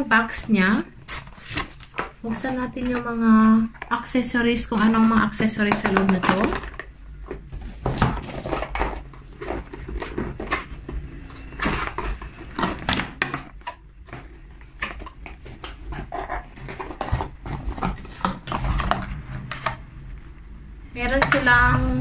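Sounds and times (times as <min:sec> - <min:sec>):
cardboard and paper rustling: 0:00.5 - 0:04.0, 0:04.7 - 0:20.4.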